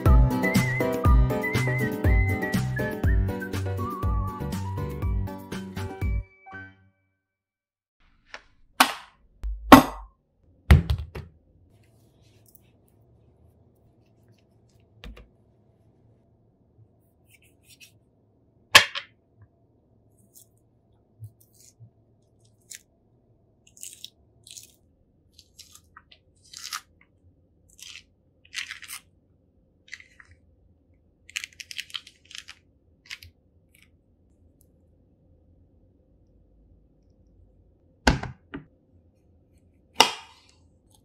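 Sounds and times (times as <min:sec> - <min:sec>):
crunching and scraping: 0:31.3 - 0:34.0.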